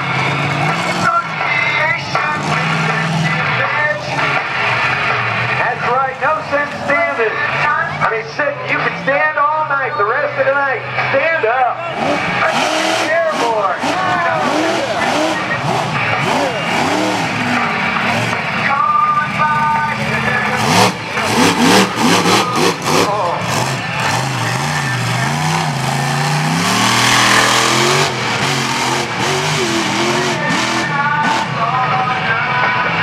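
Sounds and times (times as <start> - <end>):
monster truck engine revving: 0.0 - 33.0.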